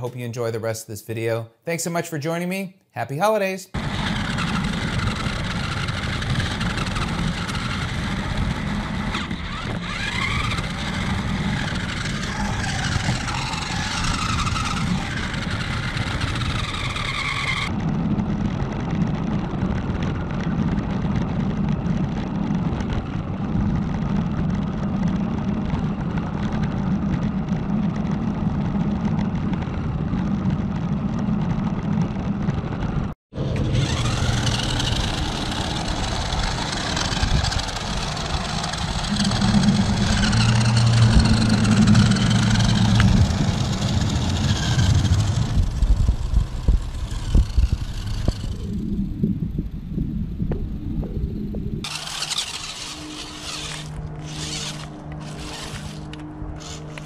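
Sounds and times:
rc truck motors whirring: 3.8s - 17.9s, 33.4s - 49.6s, 51.8s - 57.0s
tyres rolling on pavement: 3.8s - 48.6s, 51.8s - 57.0s.

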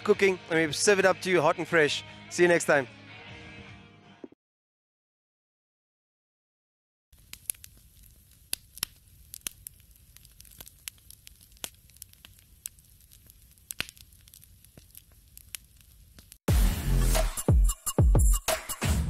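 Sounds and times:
fire crackling and popping: 7.1s - 16.4s.

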